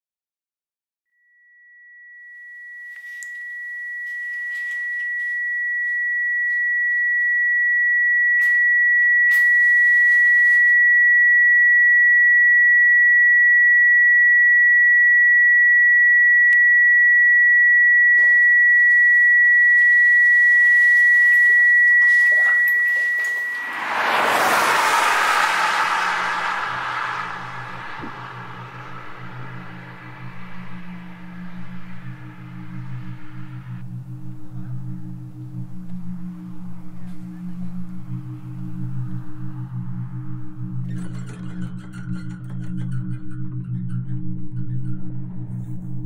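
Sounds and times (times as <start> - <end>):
high pure ringing tone: 1.1 - 46.0
loud rushing whoosh: 23.6 - 33.8.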